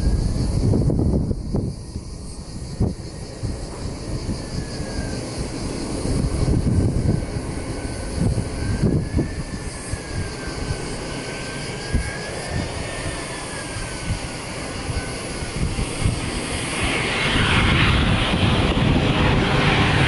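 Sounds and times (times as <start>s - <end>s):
jet engines whining: 0.0s - 20.0s
steady rush: 5.3s - 20.0s.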